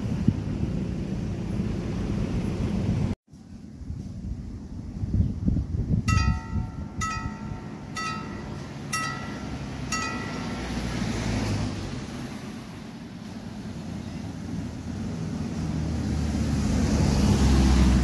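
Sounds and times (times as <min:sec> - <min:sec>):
level crossing gong bell striking: 0:06.1 - 0:10.6
car driving past: 0:15.2 - 0:18.0.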